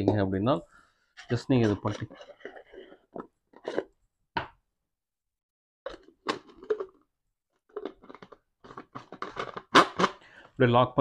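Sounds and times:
plastic clicks and scraping: 1.2s - 3.9s, 7.7s - 10.2s.

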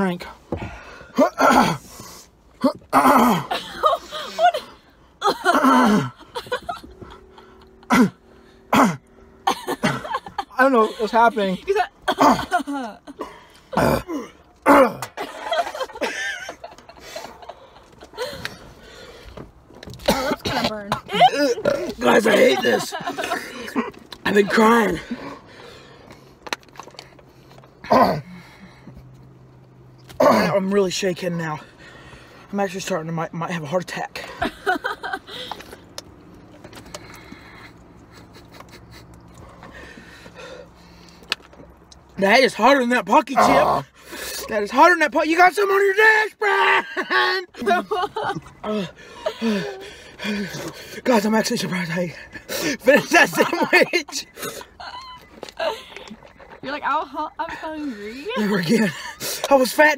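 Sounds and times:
low hum inside a car: 0.0s - 59.9s
person coughing: 7.9s - 8.1s, 20.0s - 21.9s.

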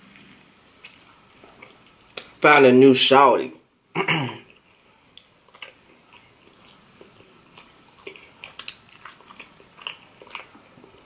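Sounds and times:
close chewing mouth sounds: 4.5s - 11.0s.

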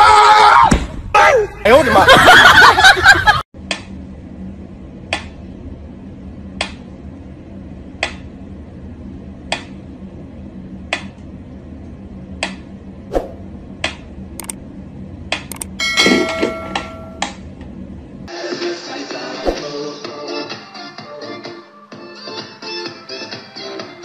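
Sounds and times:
faint steady hum: 3.7s - 18.3s
extra clicks: 13.8s - 14.6s, 15.3s - 15.8s.

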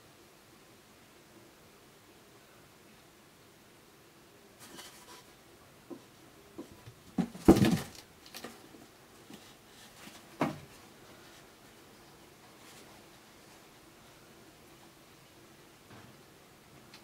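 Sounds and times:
cat landing on cardboard box: 7.2s - 8.0s.

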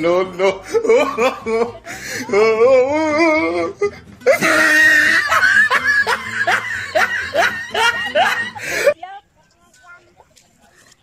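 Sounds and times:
person laughing hard: 0.1s - 8.9s.

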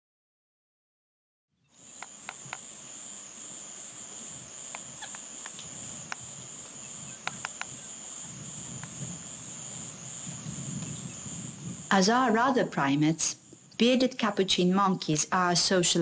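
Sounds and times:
high-pitched insect chorus: 1.7s - 16.0s.

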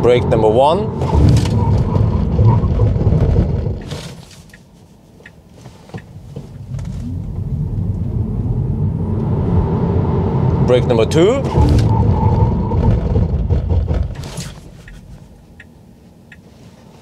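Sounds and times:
road and tyre rumble: 0.0s - 17.0s.

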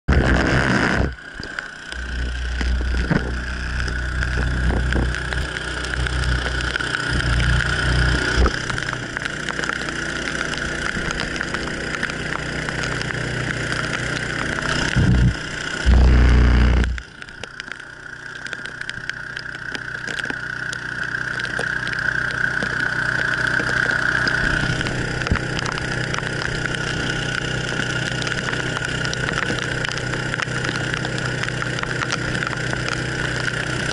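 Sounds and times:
loud low rumbles: 0.1s - 17.1s
outboard motor whining: 0.1s - 33.9s
rain: 0.1s - 33.9s
wind noise: 2.0s - 5.5s.

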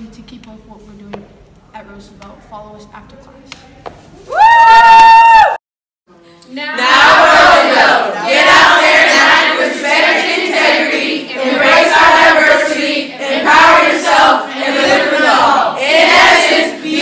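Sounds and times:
students singing in unison: 6.7s - 17.0s.

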